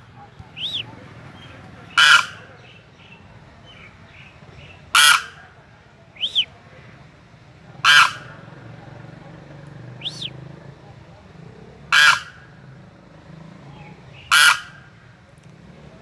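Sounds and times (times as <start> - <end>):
crane honking calls: 1.8 - 2.8, 4.7 - 5.6, 7.7 - 8.6, 11.9 - 12.5, 14.2 - 15.0.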